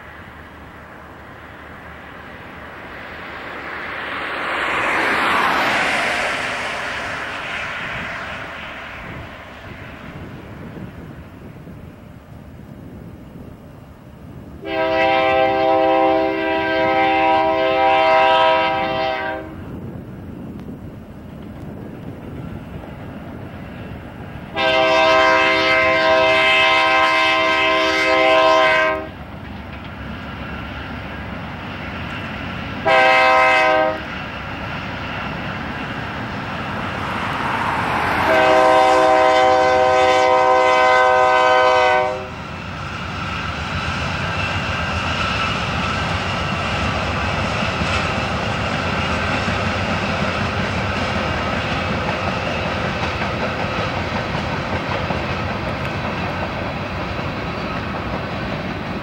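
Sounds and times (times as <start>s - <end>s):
train rumbling: 0.0s - 59.0s
locomotive air horn blasts: 14.6s - 19.6s, 24.5s - 29.2s, 32.8s - 34.1s, 37.9s - 42.4s.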